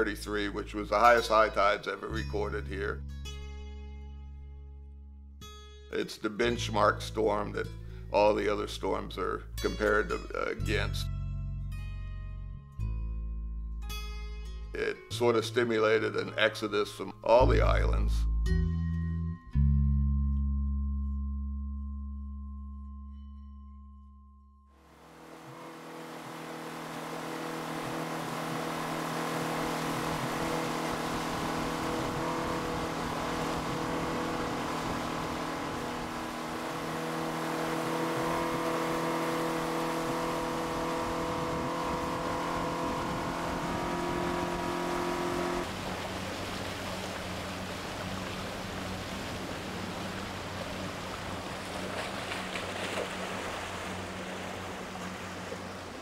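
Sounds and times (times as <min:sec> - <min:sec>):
boat motor running: 0:00.0 - 0:03.4, 0:24.8 - 0:56.0
wind: 0:00.0 - 0:03.4, 0:24.8 - 0:56.0.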